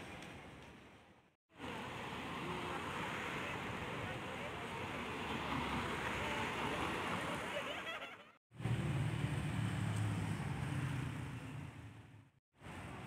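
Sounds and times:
cars driving past: 1.6s - 8.0s, 8.6s - 12.2s.

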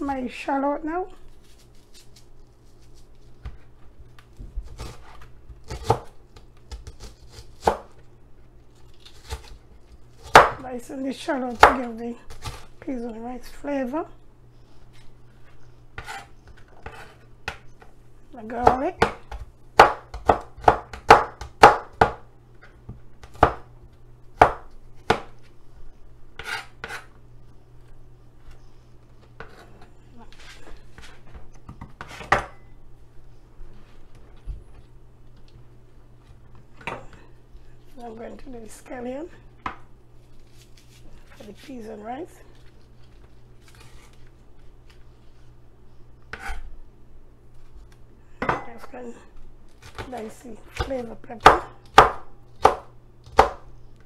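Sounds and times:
knife chopping on plastic board: 18.6s - 22.2s, 22.9s - 23.7s, 24.4s - 25.3s, 50.8s - 53.6s.

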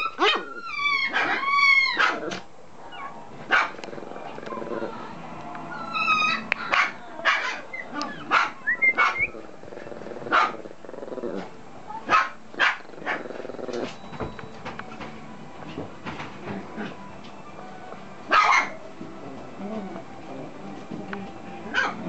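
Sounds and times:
puppy barking and yipping: 0.0s - 2.4s, 3.0s - 3.8s, 6.0s - 9.3s, 10.3s - 10.6s, 12.1s - 13.2s, 18.3s - 18.8s, 21.7s - 22.0s.

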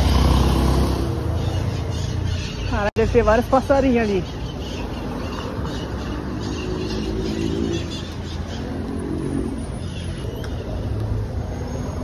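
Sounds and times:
car engines passing: 0.0s - 12.0s.

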